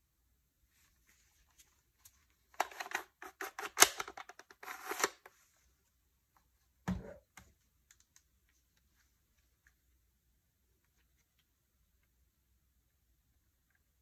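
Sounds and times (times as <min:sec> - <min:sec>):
plastic clicks and rustles: 0:02.0 - 0:05.3.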